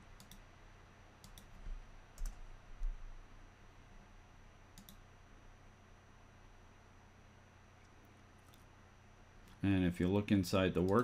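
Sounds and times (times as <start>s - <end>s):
faint steady hum: 0.0s - 11.0s
computer mouse clicking: 0.2s - 0.4s, 1.2s - 3.0s, 4.8s - 5.0s.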